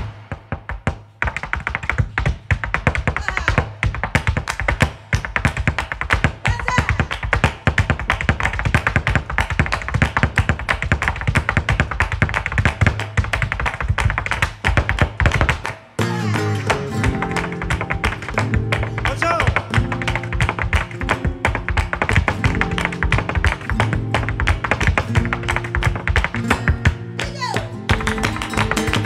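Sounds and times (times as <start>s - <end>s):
dancer's shoes striking floor: 0.0s - 29.0s
flamenco guitar: 0.0s - 29.0s.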